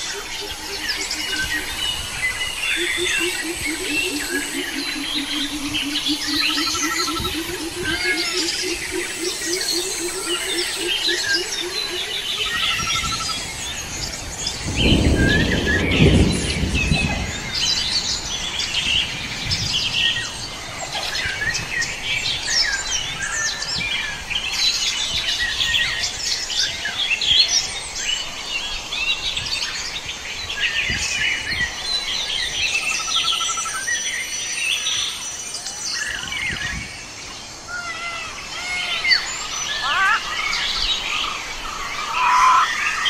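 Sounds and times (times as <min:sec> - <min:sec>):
forest birds chirping: 0:00.0 - 0:43.0
low rumble: 0:13.3 - 0:21.6.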